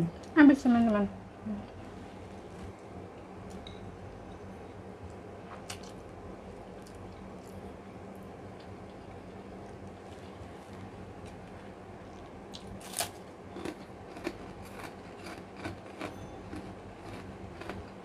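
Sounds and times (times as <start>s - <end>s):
steady low hum: 0.0s - 18.0s
cracker crunching: 8.6s - 18.0s.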